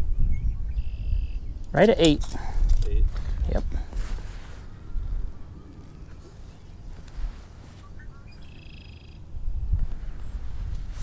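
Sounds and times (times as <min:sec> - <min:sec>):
wind buffeting microphone: 0:00.0 - 0:08.4, 0:09.2 - 0:11.0
bird call: 0:04.4 - 0:09.3.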